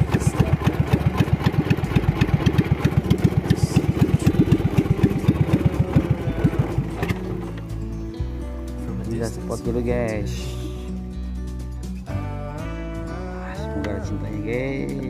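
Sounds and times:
boat engine idling: 0.0 - 7.9.

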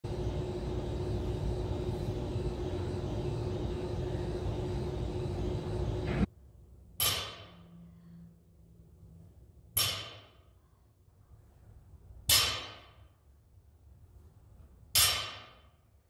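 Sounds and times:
steady tone: 0.0 - 6.3
room hum: 0.0 - 16.0.

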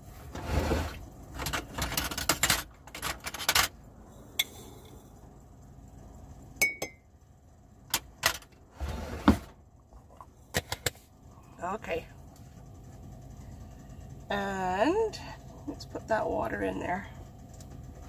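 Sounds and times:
cutlery rattling in a drawer: 1.4 - 3.7
drawer sliding shut: 8.8 - 9.5.

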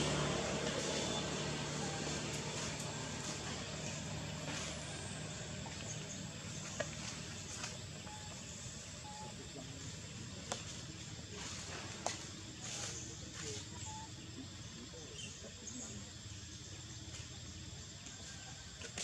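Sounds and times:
distant traffic hum: 0.0 - 18.5
faint bird calls: 5.6 - 10.8, 11.4 - 16.4.

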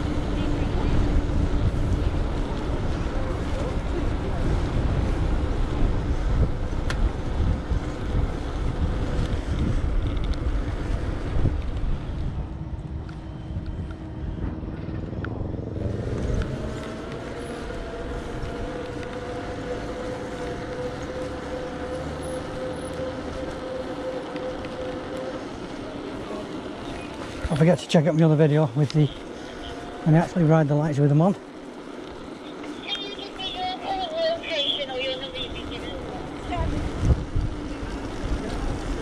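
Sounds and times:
heavy low rumble: 0.0 - 19.2
road traffic going by: 0.0 - 39.0.

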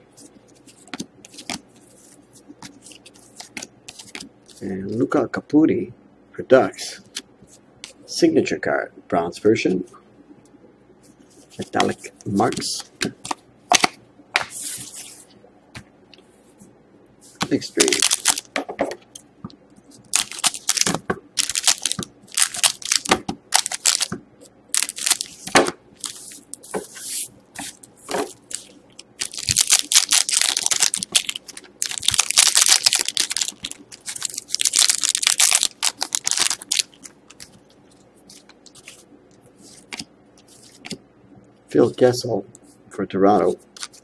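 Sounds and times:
cards rustling: 0.3 - 4.6, 17.4 - 18.6, 19.9 - 41.0, 43.8 - 44.0
wrapper crinkling and tearing: 17.8 - 18.6, 20.0 - 24.1, 24.7 - 26.6, 27.7 - 37.6.

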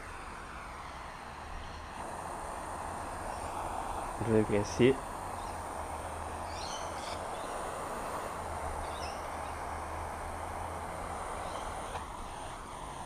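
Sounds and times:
torch burning with hiss: 0.0 - 13.0.

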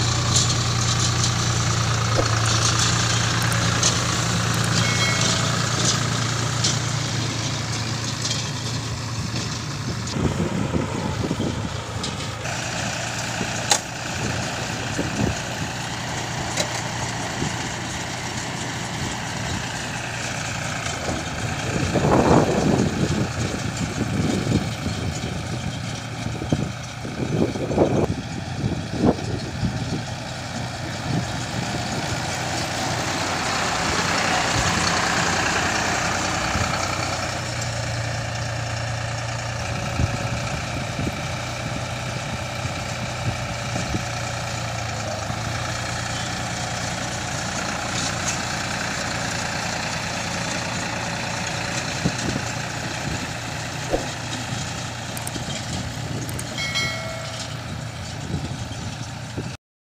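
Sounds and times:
tractor diesel engine running: 0.0 - 59.6
baler mechanical knocks: 53.8 - 54.6.

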